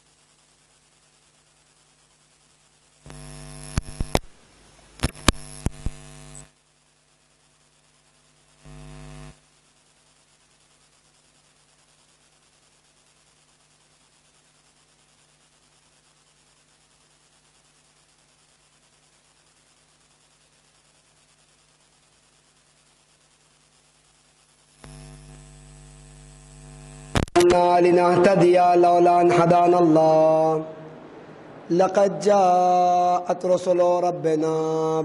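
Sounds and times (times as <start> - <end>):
electrical mains hum: 0.0 - 35.0
crackling pops: 3.0 - 6.5, 24.8 - 27.6.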